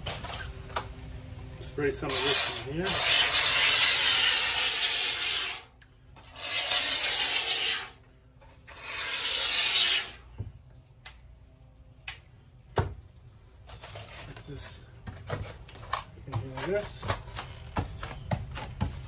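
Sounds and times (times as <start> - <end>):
spray foam can hissing: 2.1 - 5.6, 6.4 - 8.0, 8.8 - 10.2.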